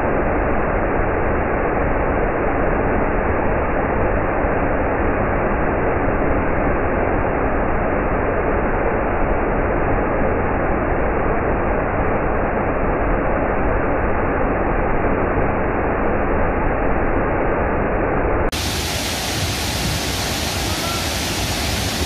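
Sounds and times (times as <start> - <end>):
water tumbling through rapids: 18.5 - 22.0
waterfall rushing: 18.5 - 22.0.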